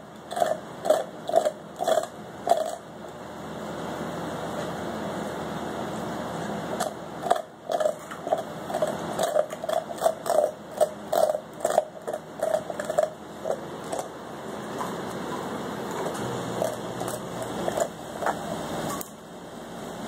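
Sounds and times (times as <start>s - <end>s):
dog gnawing a bone: 0.2s - 2.9s, 6.7s - 19.1s.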